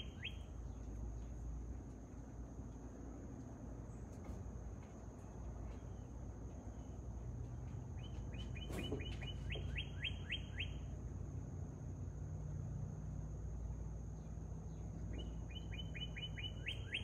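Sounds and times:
bird chirping: 0.0 - 1.0, 5.6 - 11.0, 14.1 - 17.0.

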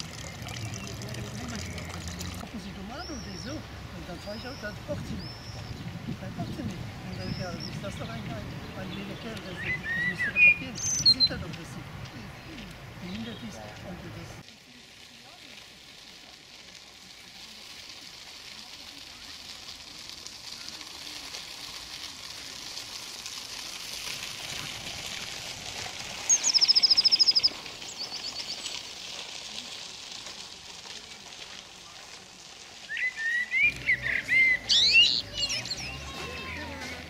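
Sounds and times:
songbirds trilling and chirping: 0.0 - 14.4, 26.2 - 28.9, 32.8 - 36.9
faint hiss: 10.6 - 36.8.

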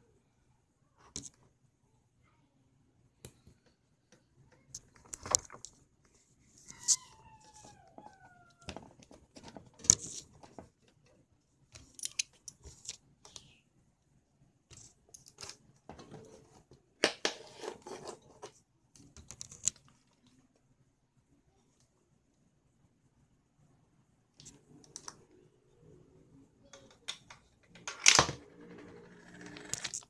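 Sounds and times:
handling rustles and clicks: 3.3 - 11.2, 11.8 - 13.4.

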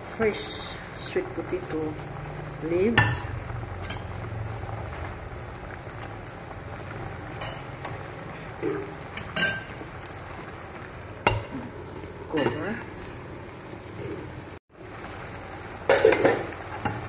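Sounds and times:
water boiling in a frying pan: 0.0 - 17.0
metal spoon clinking on pan: 7.4 - 7.8, 9.2 - 9.8.

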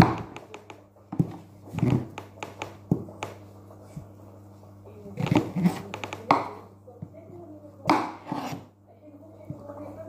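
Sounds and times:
knife cutting pumpkin: 5.2 - 6.6, 7.9 - 8.7.

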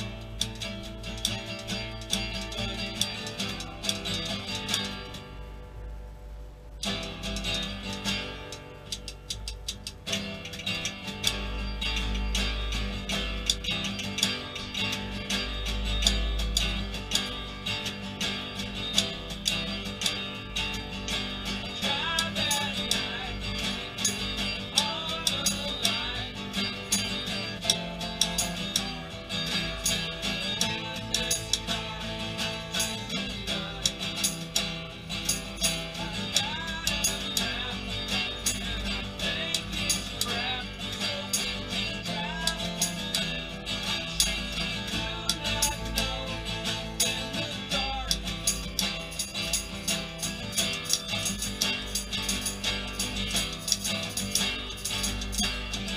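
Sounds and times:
strummed acoustic guitar: 0.0 - 55.9
person singing: 21.6 - 34.6, 35.3 - 49.3.

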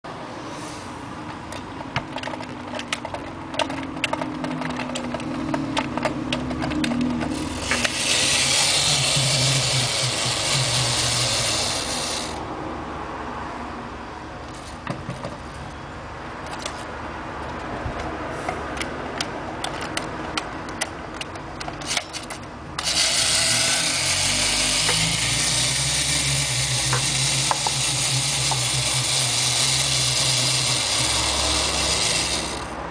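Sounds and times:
spring motor whirring: 1.9 - 12.4, 20.6 - 32.9.

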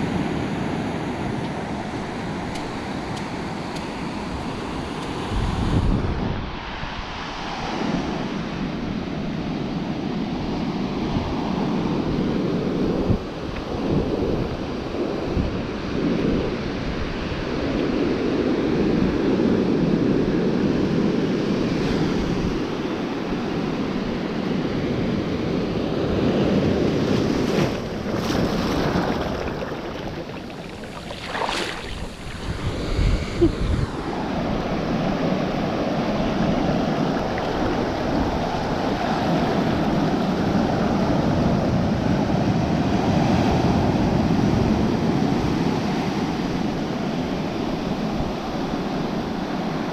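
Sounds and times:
ocean surf churning: 14.1 - 49.9
sharp water splashes: 27.2 - 32.9, 37.0 - 39.0.

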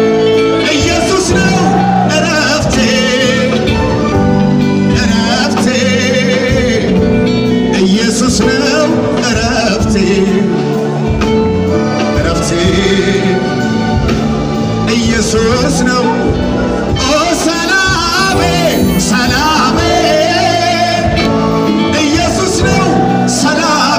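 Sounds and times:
band with amplified singing: 0.0 - 23.9.

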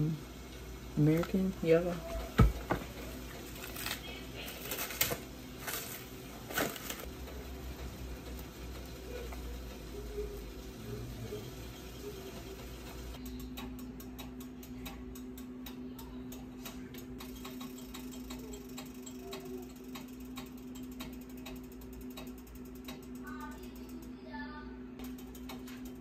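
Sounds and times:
steady low hum: 0.0 - 26.0
rapid mechanical clicking: 4.6 - 24.2, 25.0 - 26.0.

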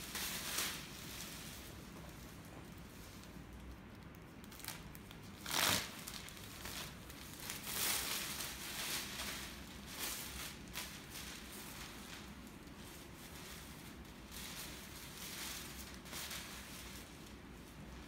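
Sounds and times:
plastic crinkling and rustling: 0.0 - 18.0
plastic apron ripping: 4.4 - 12.3.

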